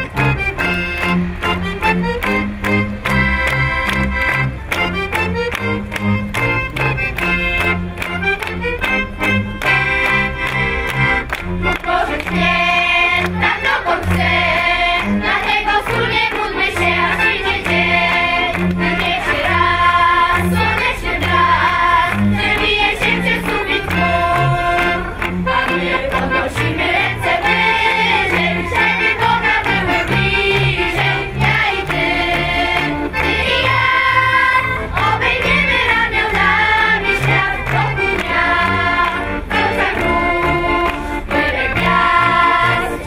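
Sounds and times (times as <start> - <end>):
folk band playing: 0.0 - 43.0
crowd singing: 11.6 - 43.0.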